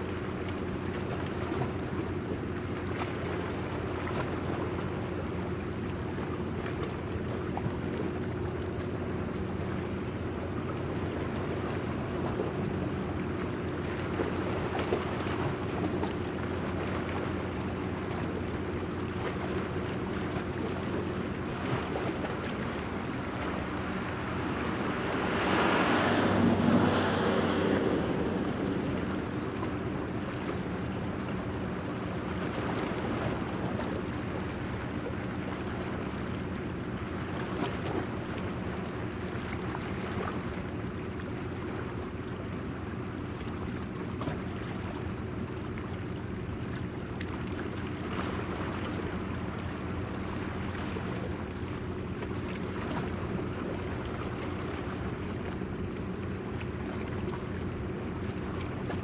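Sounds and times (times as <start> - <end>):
ship machinery hum: 0.0 - 59.0
water and wind noise: 0.0 - 59.0
rush of noise: 23.0 - 30.2.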